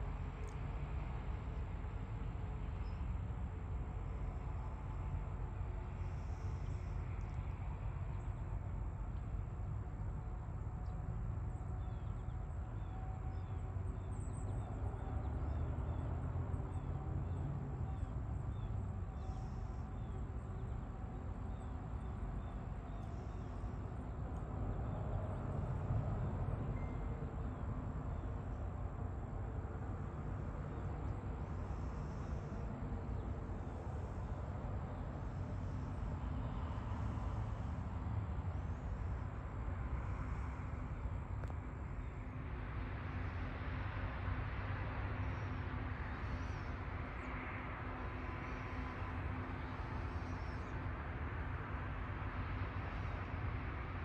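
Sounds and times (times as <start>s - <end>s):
distant low engine rumble: 0.0s - 54.0s.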